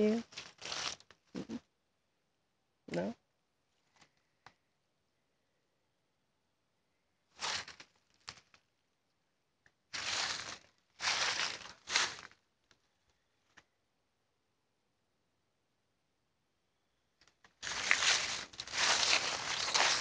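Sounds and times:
rustling and crunching: 0.2 - 1.3, 7.3 - 8.7, 9.9 - 12.8, 17.2 - 20.0.

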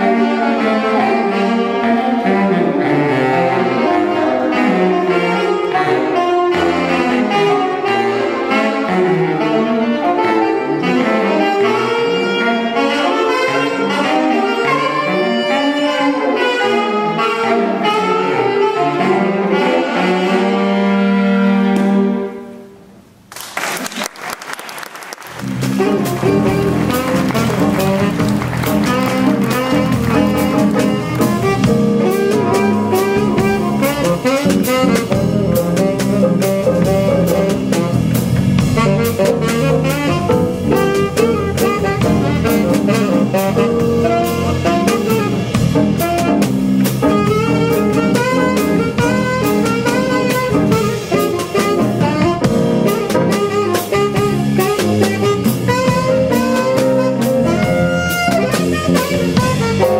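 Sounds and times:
saxophone melodic runs: 0.0 - 22.7, 24.8 - 59.9
drum kit: 25.2 - 59.9.

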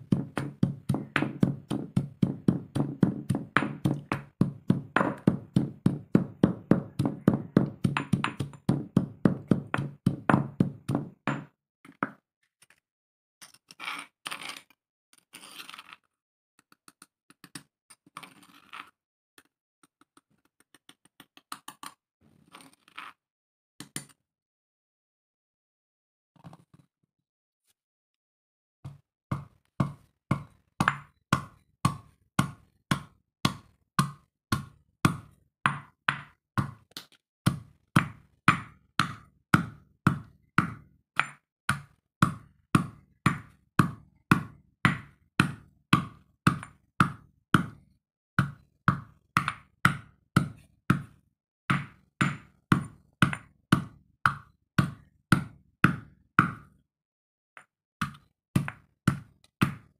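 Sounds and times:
stone pestle pounding in mortar: 0.0 - 11.5, 29.3 - 36.8, 37.5 - 47.8, 48.4 - 56.7, 58.0 - 59.9.

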